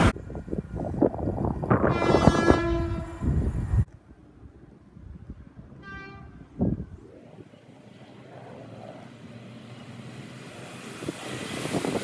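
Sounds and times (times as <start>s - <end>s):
approaching train rumble: 0.0s - 12.0s
train horn blast: 1.8s - 3.5s, 5.8s - 6.4s
hiss: 10.2s - 12.0s.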